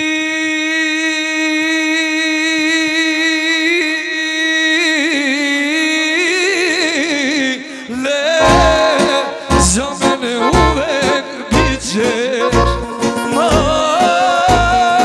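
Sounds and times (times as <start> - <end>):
man singing into a microphone: 0.0 - 15.0
heavy bass beat: 8.4 - 12.9
band playing: 8.4 - 15.0.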